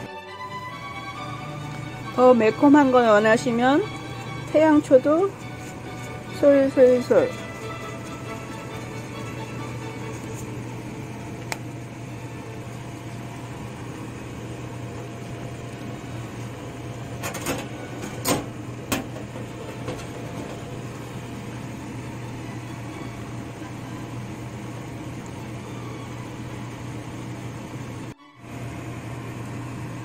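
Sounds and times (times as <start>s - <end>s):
kitchen machine hum: 0.0s - 30.0s.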